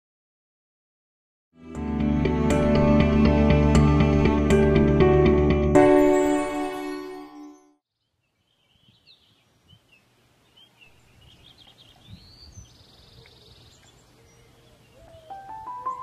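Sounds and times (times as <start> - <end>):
birds chirping and whistling: 7.3 - 7.7, 10.6 - 16.0.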